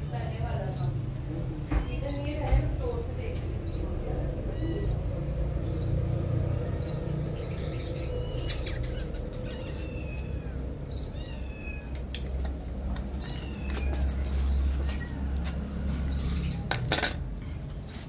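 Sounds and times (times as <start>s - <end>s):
kittens mewing: 3.9s - 5.4s, 6.8s - 15.4s.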